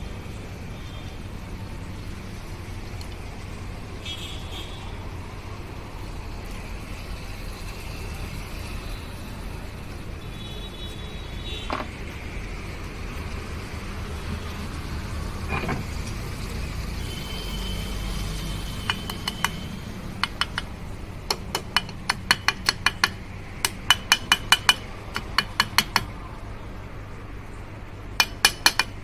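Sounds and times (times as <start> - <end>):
metal tool striking metal: 18.8 - 20.7, 21.3 - 26.1, 28.2 - 29.0.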